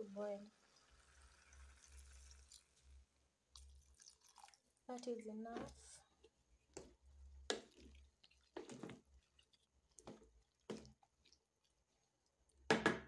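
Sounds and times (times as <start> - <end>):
wooden spoon stirring wet stew: 2.4 - 12.7.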